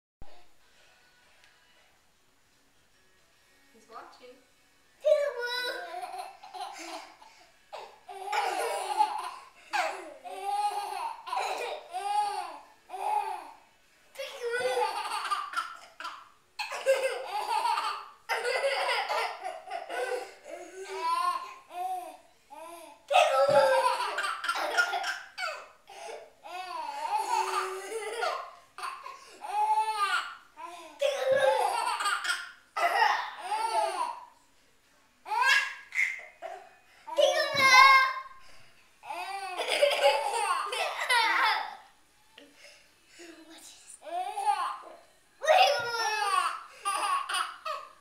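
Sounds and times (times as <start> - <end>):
baby laughing: 5.4 - 7.2, 7.8 - 13.5, 14.2 - 34.2, 39.1 - 41.8, 45.5 - 47.9.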